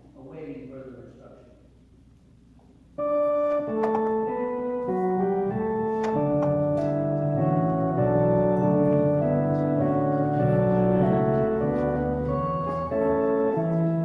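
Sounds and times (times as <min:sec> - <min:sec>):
organ-like keyboard chords: 0:02.8 - 0:14.0.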